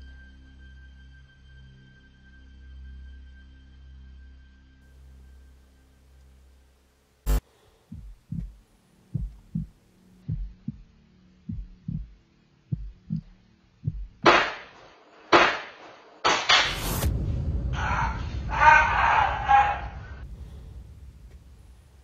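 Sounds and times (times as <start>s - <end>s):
heartbeat effect thumping: 7.3s - 10.9s, 11.5s - 14.3s
sharp noisy hits: 14.2s - 20.3s.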